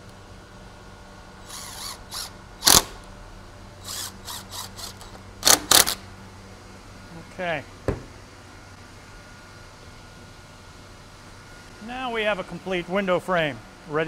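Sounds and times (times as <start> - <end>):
power drill driving screws: 1.4 - 3.0, 3.8 - 6.0.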